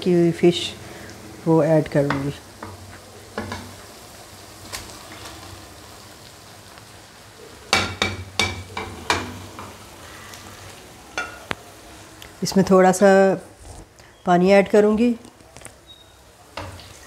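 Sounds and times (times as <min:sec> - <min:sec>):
masala sizzling in a wok: 0:00.0 - 0:17.0
spatula knocking against pan: 0:07.7 - 0:09.4.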